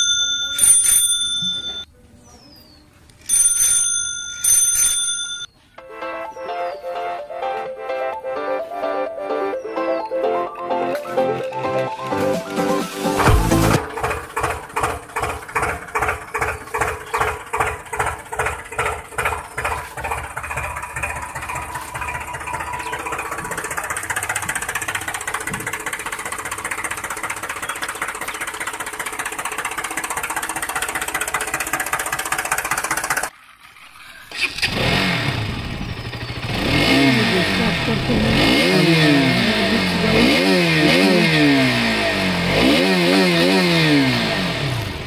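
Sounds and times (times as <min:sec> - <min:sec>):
tractor engine chugging: 0:12.3 - 0:33.4, 0:34.3 - 0:42.8
motorcycle engine revving: 0:13.0 - 0:45.0.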